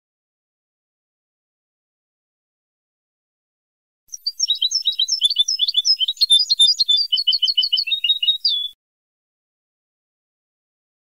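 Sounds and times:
goldfinch twittering song: 4.1s - 8.8s.

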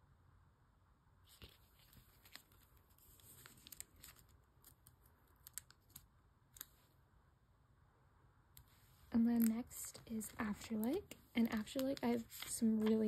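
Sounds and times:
plastic sleeves crinkling: 1.3s - 6.9s, 8.7s - 13.0s.

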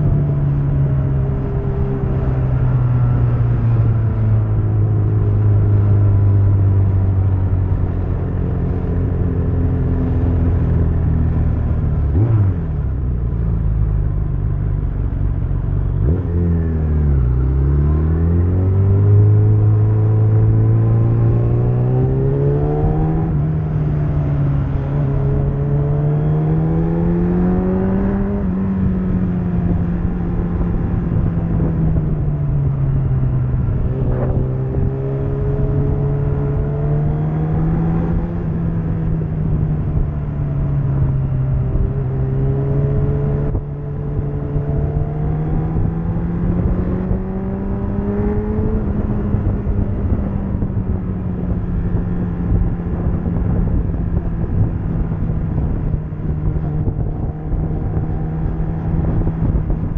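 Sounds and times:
wind rushing on microphone: 14.5s - 59.9s.

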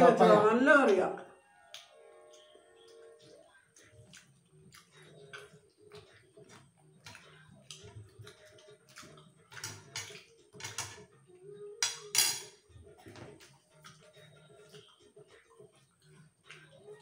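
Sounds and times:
spoon clinking ceramic plates: 9.5s - 11.1s, 11.8s - 12.6s.

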